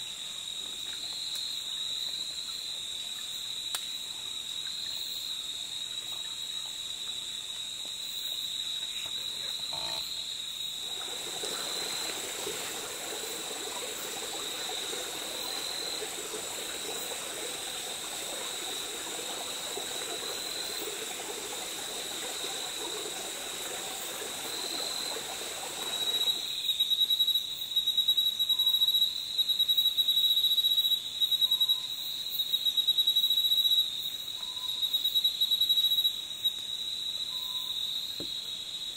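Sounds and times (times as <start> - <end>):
high-pitched insect trill: 0.0 - 38.9
lower rough insect drone: 0.0 - 38.9
pulsing loud insect trill: 1.2 - 38.9.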